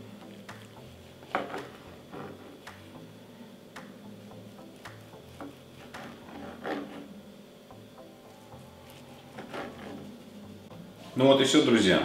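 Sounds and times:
knife slicing bread roll: 4.9s - 7.2s.

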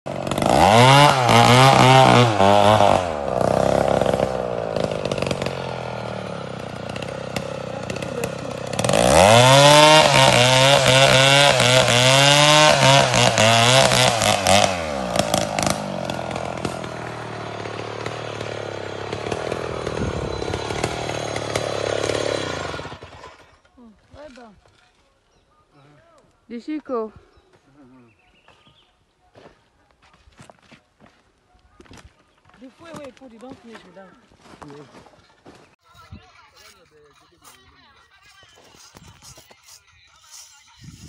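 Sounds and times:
chainsaw revving: 0.1s - 24.2s
chainsaw idling: 0.1s - 24.4s.

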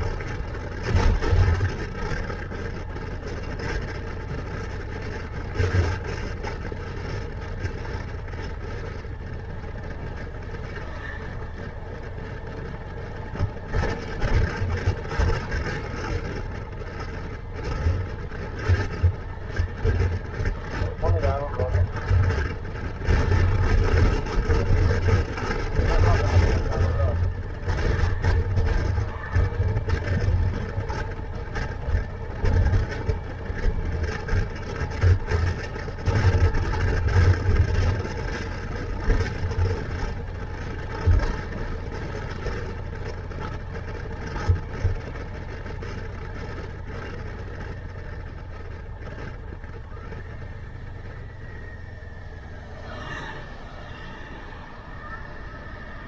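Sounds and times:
motorcycle engine running: 0.0s - 56.0s
wind buffeting microphone: 0.0s - 56.0s.

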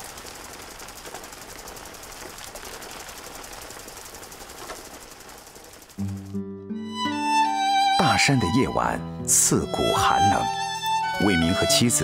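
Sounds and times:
rotating sprinkler spraying and rattling: 0.0s - 6.3s.

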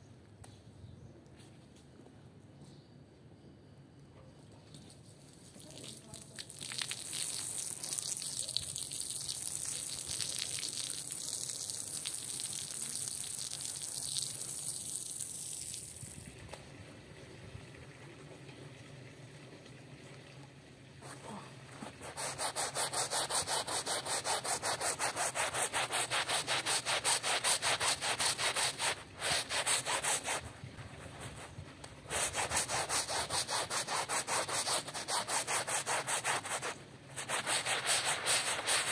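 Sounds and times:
steady hiss: 21.0s - 38.9s
brush scrubbing wet rug: 21.8s - 38.9s.

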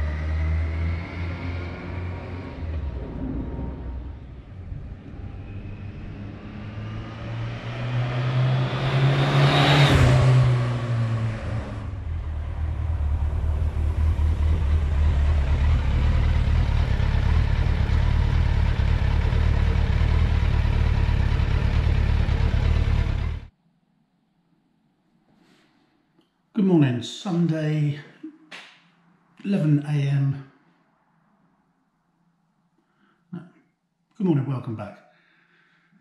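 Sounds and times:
motorcycle engine passing by: 0.0s - 23.5s.

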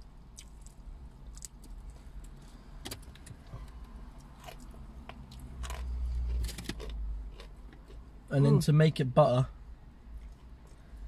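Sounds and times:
crunching and chewing food: 0.0s - 8.1s.

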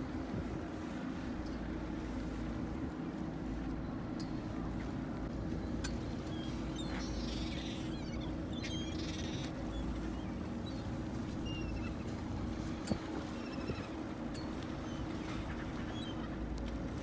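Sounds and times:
boat engine humming: 0.0s - 17.0s
gulls calling: 5.5s - 17.0s.

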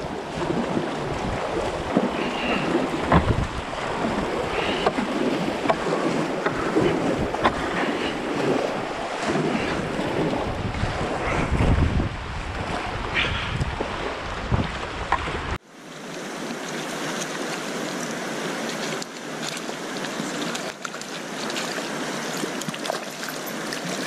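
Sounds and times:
wind buffeting microphone: 0.0s - 15.6s
river water rushing and splashing: 0.0s - 24.0s.

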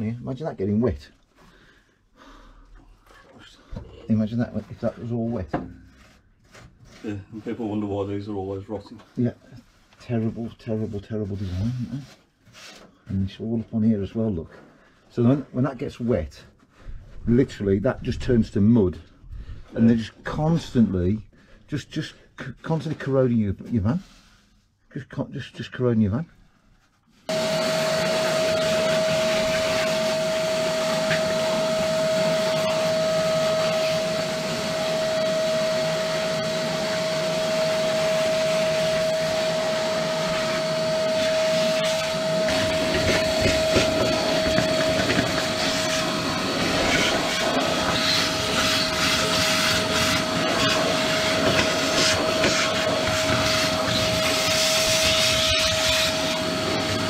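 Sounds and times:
vacuum cleaner whine: 27.3s - 57.0s.

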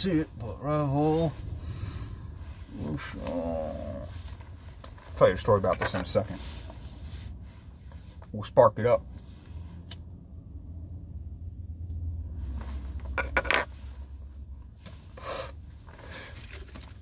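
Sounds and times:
low rumble: 0.0s - 5.2s, 9.5s - 14.7s
breathy exhales: 1.0s - 4.5s
puffing on a blunt: 14.8s - 16.9s.

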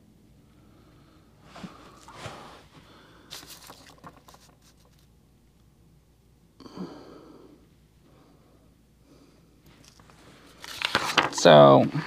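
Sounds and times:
faint crackling rustles: 1.4s - 5.2s
person sighing: 6.6s - 7.6s.

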